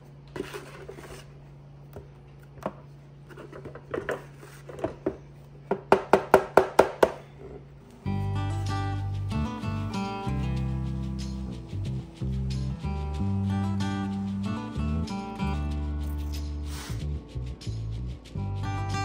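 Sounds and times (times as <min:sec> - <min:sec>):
steady low hum: 0:00.0 - 0:19.0
acoustic guitar music: 0:08.0 - 0:19.0.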